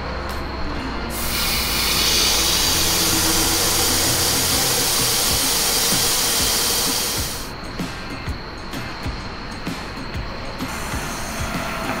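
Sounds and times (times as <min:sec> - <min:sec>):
air hissing out of tire valve: 0:01.1 - 0:07.5, 0:10.6 - 0:12.0.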